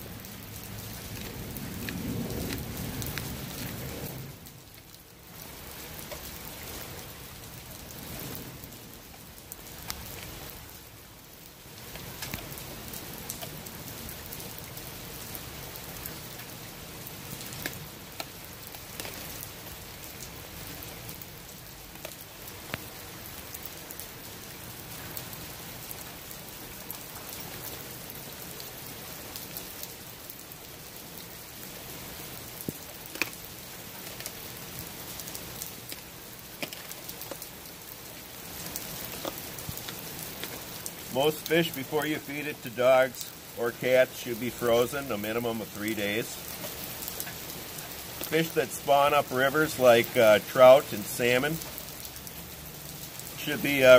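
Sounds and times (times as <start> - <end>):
steady rain falling: 0.0 - 53.9
dog chewing raw fish crunches: 1.0 - 3.7.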